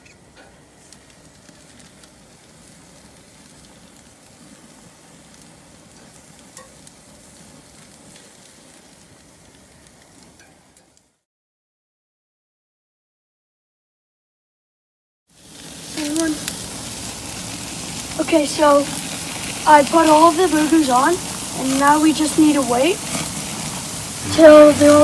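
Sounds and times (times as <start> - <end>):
meat patties sizzling on grill: 0.0 - 10.9, 15.3 - 25.0
crackling pops: 0.0 - 11.1, 15.4 - 25.0.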